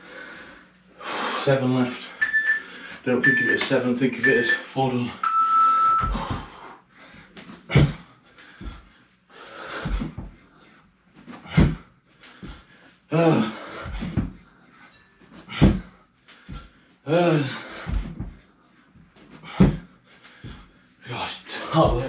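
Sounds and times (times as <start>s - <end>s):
man breathing hard: 0.0s - 3.1s, 6.0s - 21.0s
thuds on the floor: 6.0s - 6.6s, 7.7s - 8.0s, 9.8s - 10.4s, 11.4s - 12.6s, 15.5s - 15.9s, 19.4s - 20.6s
man grunting: 13.1s - 13.6s, 17.1s - 17.7s.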